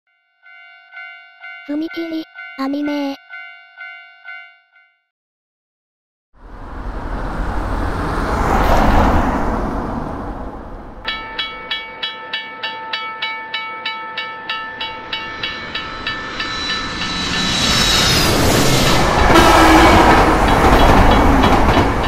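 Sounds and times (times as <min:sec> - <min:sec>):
railroad crossing bell ringing: 0:00.1 - 0:05.1, 0:11.0 - 0:18.2, 0:20.5 - 0:22.0
rushing rumble: 0:06.4 - 0:11.4, 0:14.9 - 0:22.0
approaching train rumble: 0:06.4 - 0:11.9, 0:14.5 - 0:22.0.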